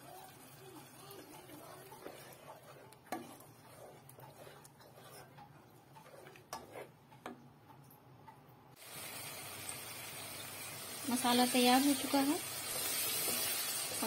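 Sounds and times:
sizzling in oil: 0:00.0 - 0:05.4, 0:08.8 - 0:14.0
wooden spatula knocking and scraping: 0:01.1 - 0:07.8.

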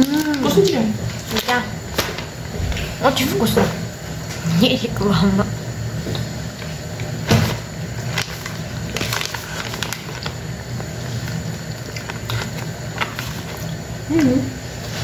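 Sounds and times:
steady low hum: 0:00.0 - 0:15.0
plastic package crinkling: 0:07.4 - 0:13.8.

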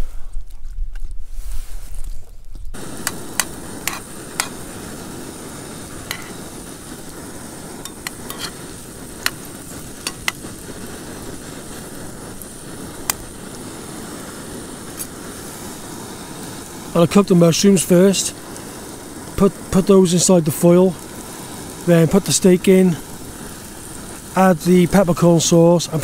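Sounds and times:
mushrooms sizzling in a frying pan: 0:02.8 - 0:26.0
metal spork clicking against pan: 0:03.0 - 0:04.6, 0:06.1 - 0:06.4, 0:07.8 - 0:08.6, 0:10.0 - 0:10.4.

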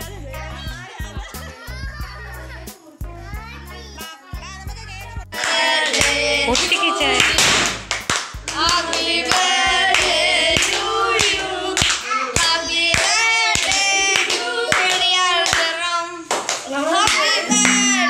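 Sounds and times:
music: 0:00.0 - 0:14.9, 0:17.5 - 0:18.0
group singing a celebration song: 0:05.3 - 0:16.4
hands clapping: 0:05.4 - 0:15.7, 0:16.3 - 0:18.0.

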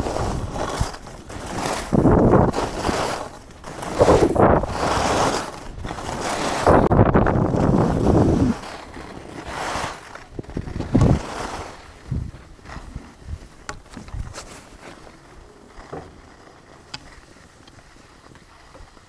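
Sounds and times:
skis scraping on snow: 0:00.0 - 0:19.0
wind buffeting microphone: 0:01.6 - 0:03.0, 0:03.9 - 0:08.6, 0:10.3 - 0:11.3, 0:12.0 - 0:14.4.

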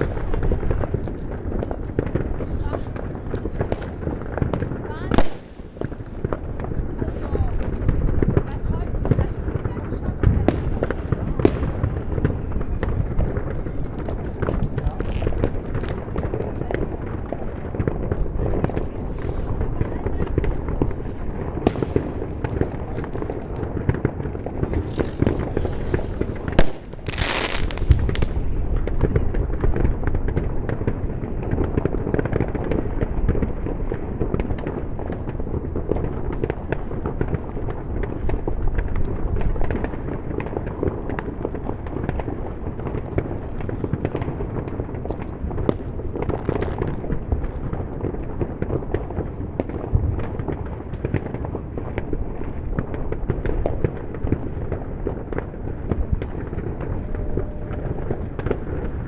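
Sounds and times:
loud firework bang: 0:00.0 - 0:31.0, 0:52.8 - 0:59.0
fireworks crackling and banging: 0:00.0 - 0:59.0
hissing burst: 0:24.7 - 0:27.0.

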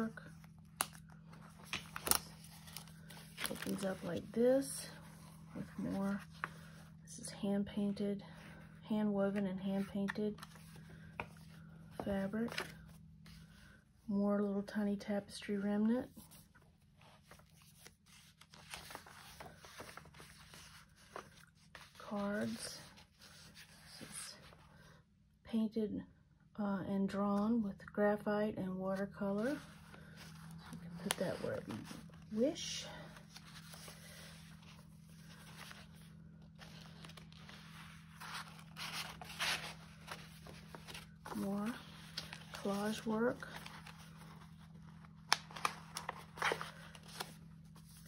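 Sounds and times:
paper pages rustling: 0:00.0 - 0:04.3, 0:09.3 - 0:13.8, 0:16.1 - 0:24.5, 0:29.4 - 0:48.0.

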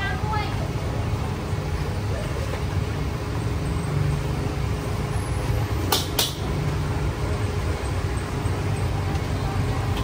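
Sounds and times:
low street rumble: 0:00.0 - 0:10.0
sharp clacks: 0:05.9 - 0:06.5.

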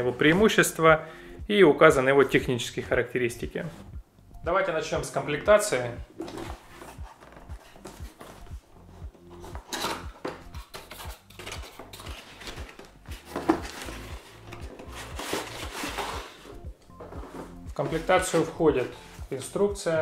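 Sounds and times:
cardboard rubbing and scraping: 0:10.6 - 0:18.6.

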